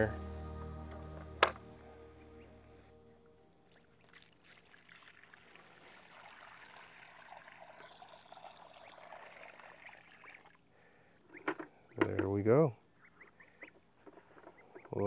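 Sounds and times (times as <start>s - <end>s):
water splashing into pan: 3.7s - 10.5s.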